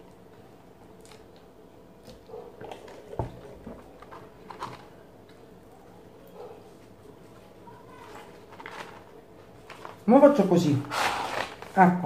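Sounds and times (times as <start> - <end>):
rustles of fries in carton: 7.8 - 10.1, 10.7 - 12.0.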